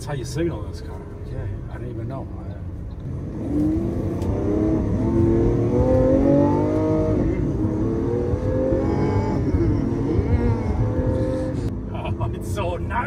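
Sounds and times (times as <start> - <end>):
car engine accelerating hard: 3.0 - 11.7.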